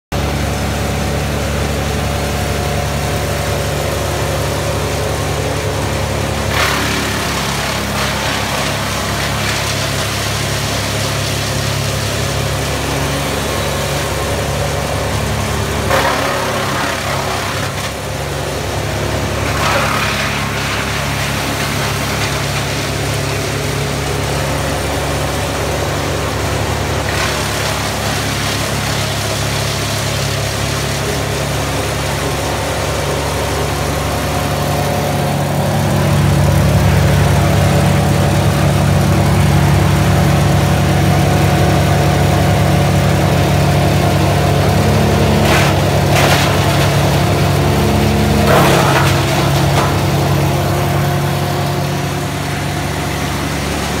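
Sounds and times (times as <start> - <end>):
woodchipper engine drone: 0.1 - 54.0
branches cracking in chipper: 6.4 - 13.6, 14.2 - 18.4, 19.3 - 40.0, 43.3 - 53.8.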